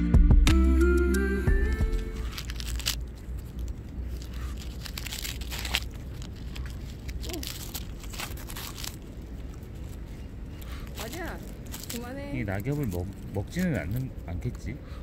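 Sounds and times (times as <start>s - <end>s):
dog chewing dry leaves: 1.9s - 14.8s.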